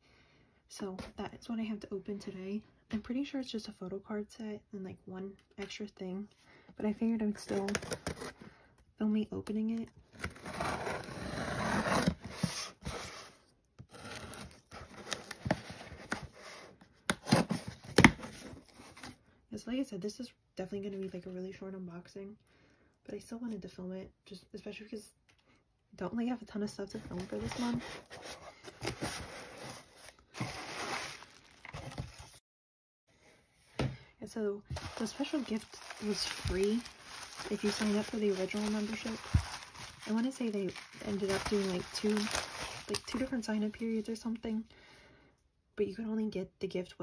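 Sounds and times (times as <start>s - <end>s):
cardboard scraping: 10.2s - 19.2s, 27.0s - 32.4s, 34.7s - 43.3s
bubble wrap crinkling: 27.1s - 32.4s, 34.7s - 43.4s.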